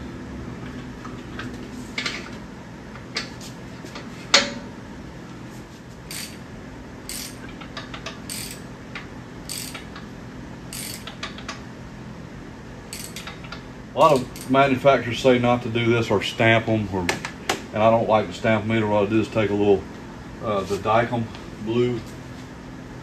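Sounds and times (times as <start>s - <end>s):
ratchet clicks: 6.1s - 6.4s, 7.1s - 10.0s, 10.7s - 11.6s, 12.9s - 14.5s.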